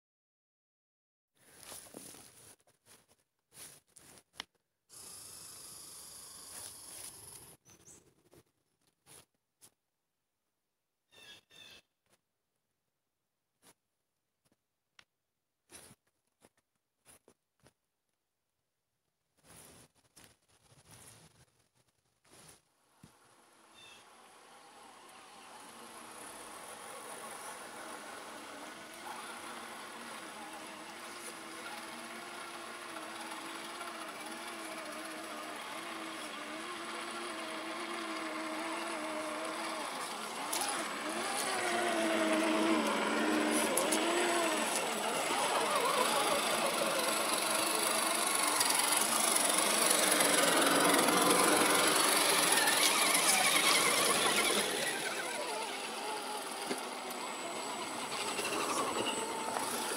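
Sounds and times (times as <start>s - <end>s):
toy truck motors whining: 4.9s - 8.0s, 23.1s - 59.9s.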